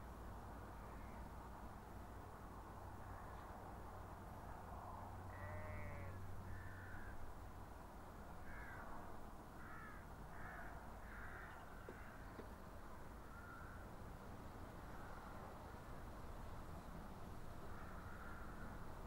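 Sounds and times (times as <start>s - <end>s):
crow cawing: 5.3s - 7.2s, 8.4s - 8.9s, 9.6s - 12.2s, 13.3s - 13.8s, 17.7s - 18.8s.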